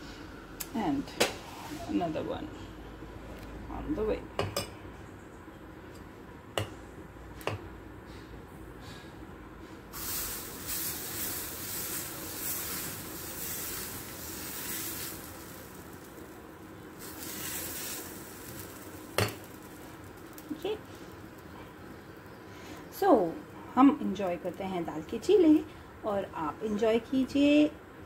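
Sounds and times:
batter sizzling in frying pan: 9.9s - 22.5s.

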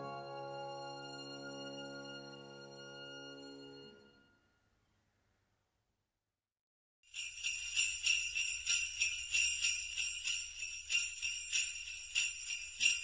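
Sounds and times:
jingle bells shaken: 7.1s - 13.0s.

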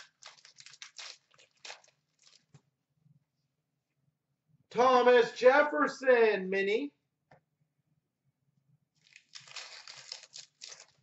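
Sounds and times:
foil wrapper rustling: 0.0s - 2.6s, 9.0s - 11.0s.

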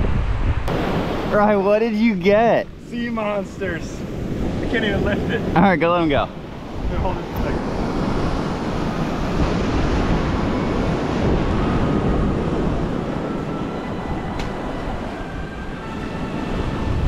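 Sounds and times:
ocean surf: 0.0s - 13.6s
wind buffeting microphone: 0.0s - 17.0s.

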